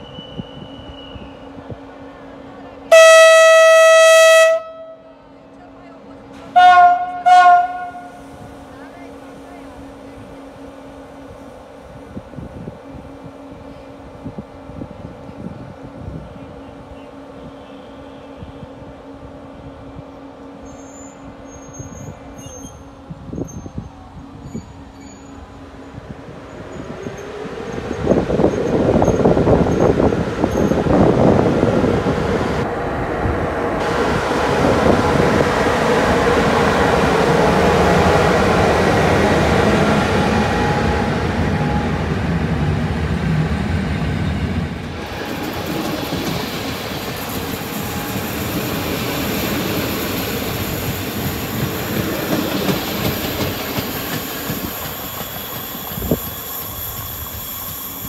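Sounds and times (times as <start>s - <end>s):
train wheels squealing: 0.0s - 1.6s, 20.6s - 25.6s, 26.5s - 30.8s, 45.0s - 58.0s
train wheels clacking: 44.8s - 58.0s.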